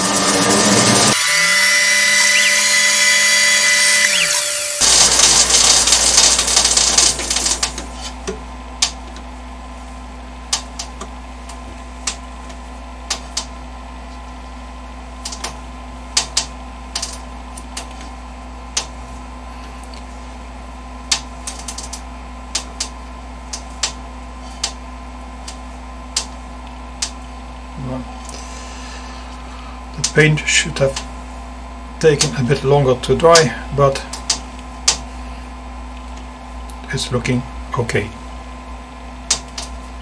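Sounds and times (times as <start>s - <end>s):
lathe spindle running: 0.0s - 7.0s
machine humming: 0.0s - 7.8s.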